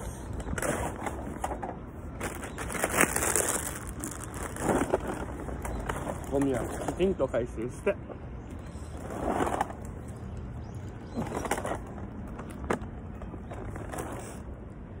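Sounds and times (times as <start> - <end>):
plastic bags and wrappers rustling: 2.1 - 7.0.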